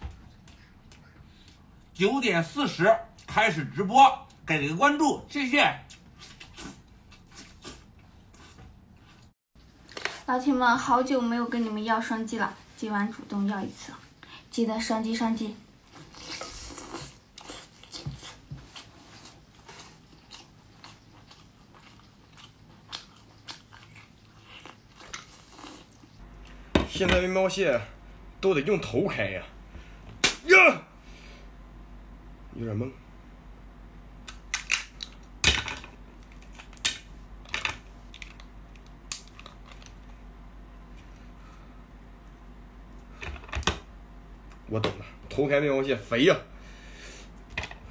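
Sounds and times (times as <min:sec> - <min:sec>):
biting and chewing crab meat: 0:16.0 - 0:26.1
crab shell cracking and crunching: 0:34.2 - 0:35.5, 0:36.2 - 0:40.2.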